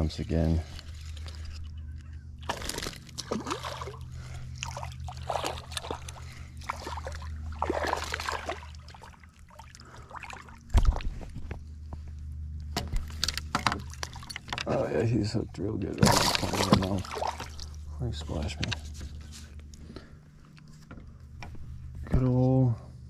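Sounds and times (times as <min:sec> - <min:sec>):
water splashing and sloshing: 0:00.0 - 0:19.6
steady low hum: 0:00.0 - 0:23.0
fish thrashing at surface: 0:02.4 - 0:11.2, 0:16.0 - 0:17.8.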